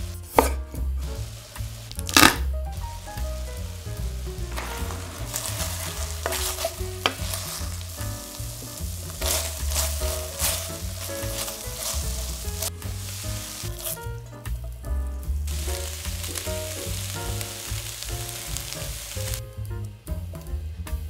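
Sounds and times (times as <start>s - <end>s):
meat sizzling in a frying pan: 1.0s - 19.7s
spatula scraping a pan: 4.5s - 14.0s.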